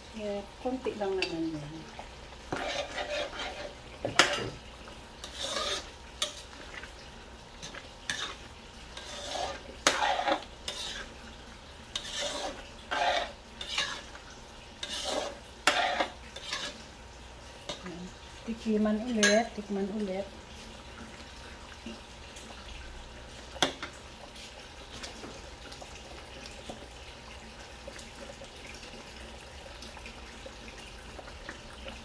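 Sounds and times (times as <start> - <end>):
ladle stirring sauce in a wok: 0.6 - 19.7.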